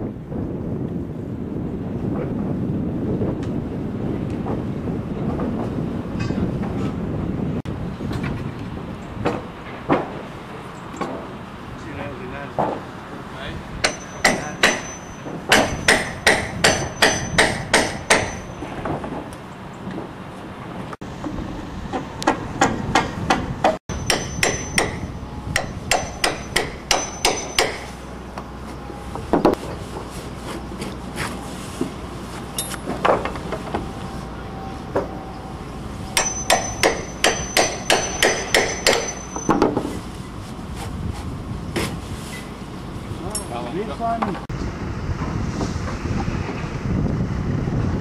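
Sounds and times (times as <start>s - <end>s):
hammer blows on timber: 13.8s - 19.1s, 21.9s - 28.0s, 36.1s - 39.9s.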